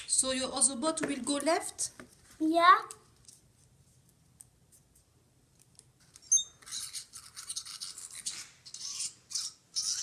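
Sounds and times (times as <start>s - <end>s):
click with brief squeak: 6.2s - 6.8s.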